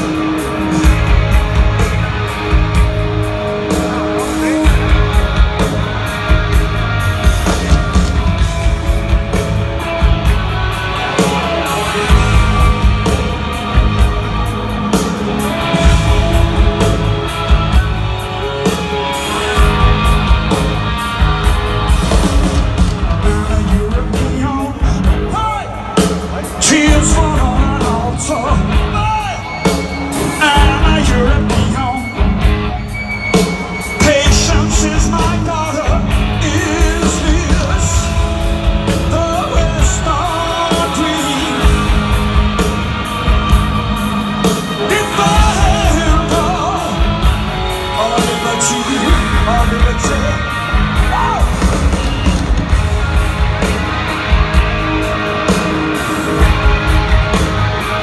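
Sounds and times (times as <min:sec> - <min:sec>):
live rock band playing: 0:00.0 - 0:58.0
male lead vocal: 0:23.2 - 0:32.4, 0:33.9 - 0:42.3, 0:44.5 - 0:51.8.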